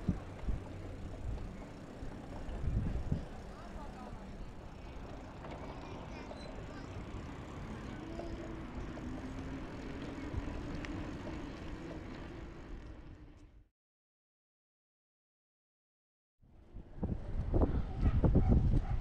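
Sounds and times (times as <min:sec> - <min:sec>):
wind rumbling on microphone: 0:00.0 - 0:03.6, 0:16.5 - 0:19.0
tyres rolling on pavement: 0:00.0 - 0:13.6.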